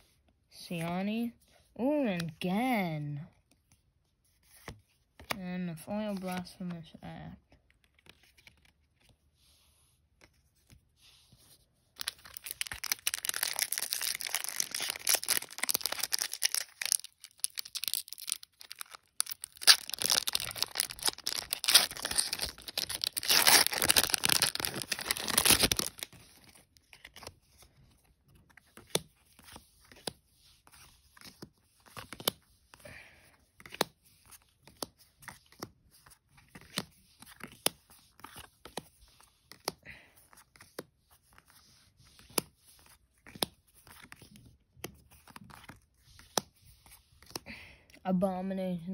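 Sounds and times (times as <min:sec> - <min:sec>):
foil wrapper tearing and crinkling: 0:12.0 - 0:27.3.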